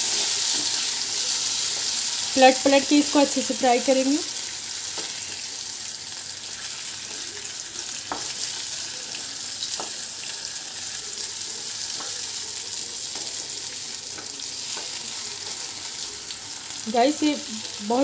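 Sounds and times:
potatoes sizzling in hot oil: 0:00.0 - 0:18.0
wooden spatula tapping pan: 0:08.1 - 0:08.4, 0:09.7 - 0:10.0.

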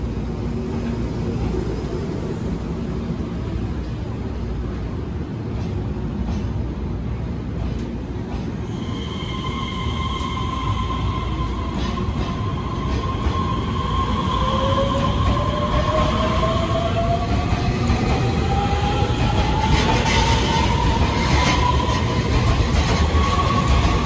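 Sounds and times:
train rolling with low rumble: 0:00.0 - 0:24.0
train electric whine: 0:08.6 - 0:24.0.

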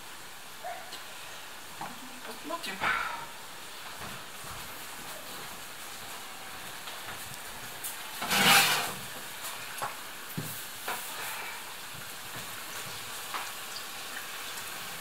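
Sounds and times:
dough deep-frying in hot oil: 0:00.0 - 0:15.0.

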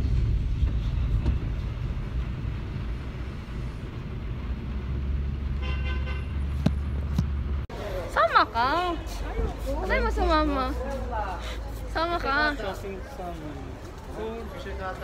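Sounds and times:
van engine and tyres rumbling: 0:00.0 - 0:15.0.

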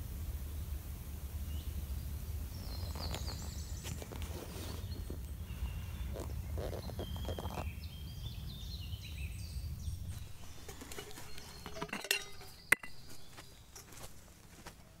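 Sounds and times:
kettle lid clinking: 0:10.0 - 0:14.1.

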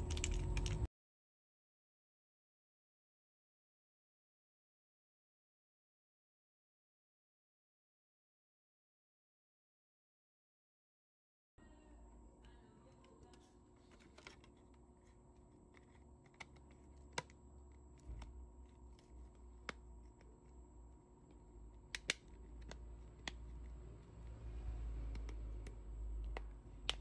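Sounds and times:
plastic clips snapping: 0:21.8 - 0:23.6, 0:25.1 - 0:27.0.

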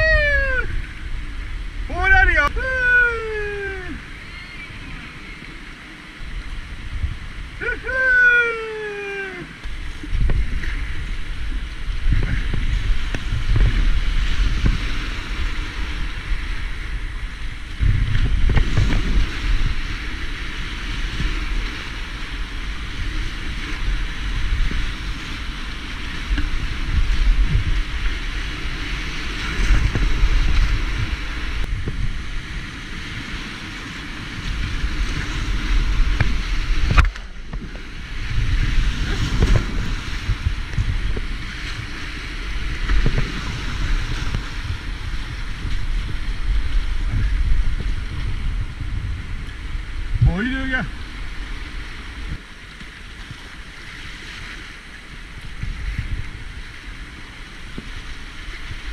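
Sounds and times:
whitewater rapids rushing: 0:00.0 - 0:04.8, 0:07.4 - 0:37.4
wind buffeting microphone: 0:00.0 - 0:58.9.

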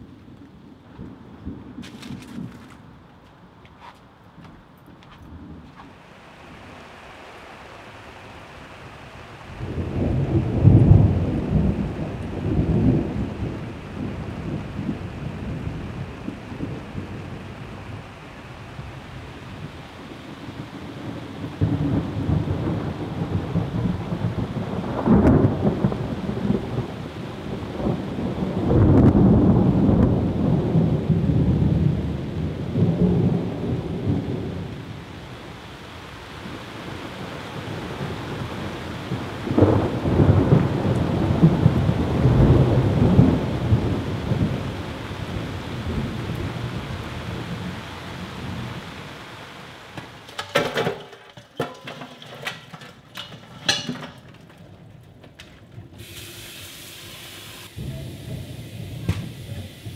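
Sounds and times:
thunder rumbling: 0:00.0 - 0:03.1, 0:05.3 - 0:51.0, 0:57.6 - 0:59.9
loud thunder claps: 0:08.9 - 0:35.0, 0:36.4 - 0:49.1.

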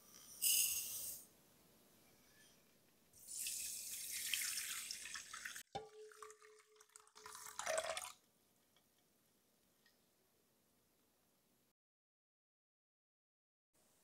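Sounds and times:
water pouring into glass bowl: 0:03.2 - 0:08.2.

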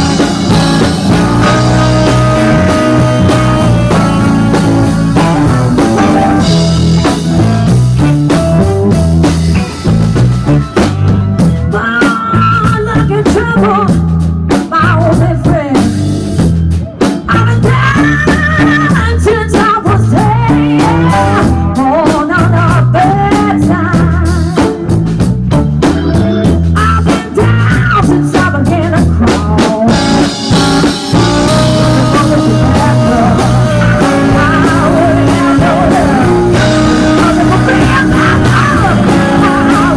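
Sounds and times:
lead electric guitar bent notes: 0:00.0 - 0:12.1, 0:24.4 - 0:27.7, 0:29.8 - 0:39.9
busy drum kit: 0:00.0 - 0:39.9
walking electric bass: 0:00.0 - 0:39.9.

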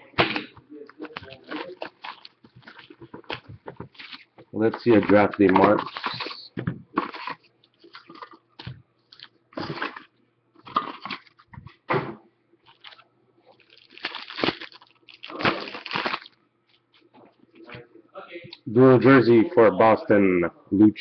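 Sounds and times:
card packs crinkling: 0:00.0 - 0:11.6, 0:12.6 - 0:17.1.

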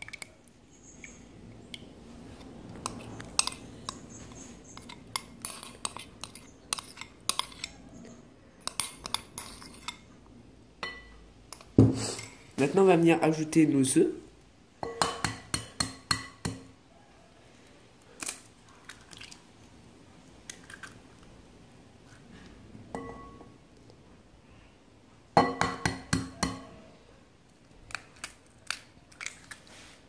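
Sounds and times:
glass clinks: 0:23.0 - 0:23.5
eggs knocked on glass bowl: 0:25.4 - 0:26.7.

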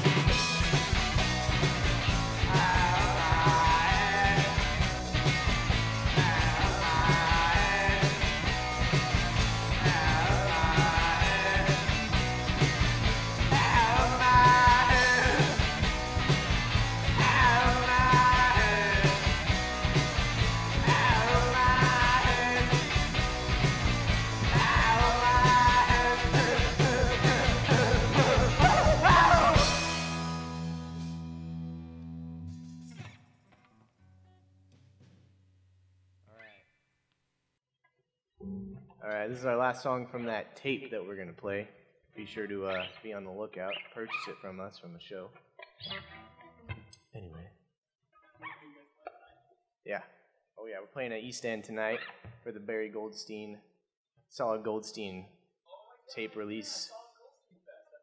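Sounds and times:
drum kit: 0:00.0 - 0:31.3
electric bass: 0:00.0 - 0:32.9
electric guitar: 0:00.0 - 0:34.9
person singing: 0:02.3 - 0:04.9, 0:06.0 - 0:08.5, 0:09.6 - 0:12.2, 0:13.4 - 0:15.9, 0:17.0 - 0:20.0, 0:20.7 - 0:23.4, 0:24.2 - 0:30.8.

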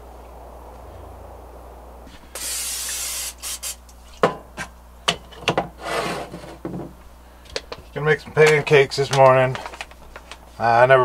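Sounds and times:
oil spray hissing into pan: 0:02.1 - 0:04.0
objects knocking on counter: 0:06.3 - 0:07.0.

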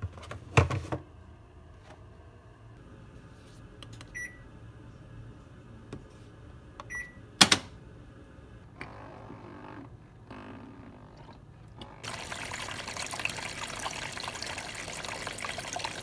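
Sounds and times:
liquid detergent pouring: 0:12.0 - 0:16.0.

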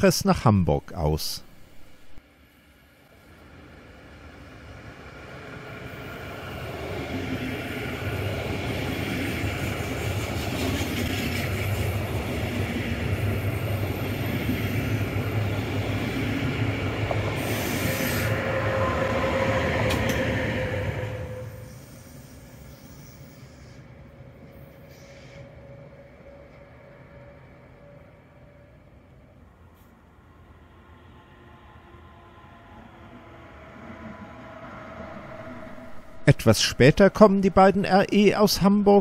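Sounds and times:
train wheels rumbling on rails: 0:04.1 - 0:27.2.

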